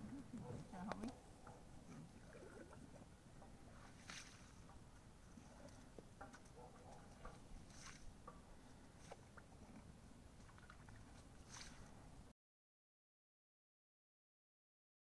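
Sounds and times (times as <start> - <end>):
soft scrapes and clicks: 3.7 - 12.0.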